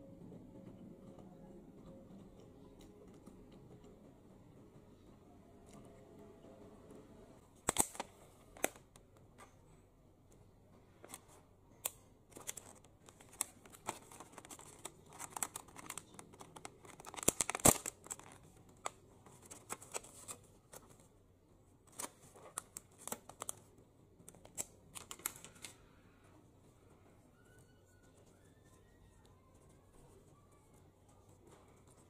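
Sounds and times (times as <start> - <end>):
plastic food container crinkling: 12.3 - 20.9.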